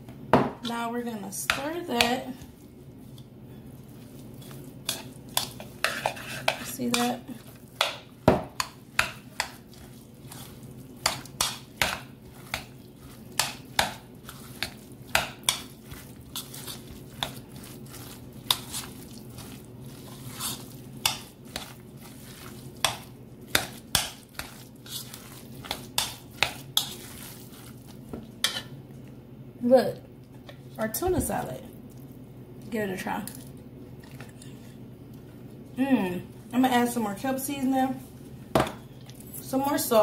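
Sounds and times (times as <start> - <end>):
steady low hum: 0.0 - 40.0
fork clinking and scraping a bowl: 4.4 - 8.0, 8.6 - 27.7, 28.4 - 28.7.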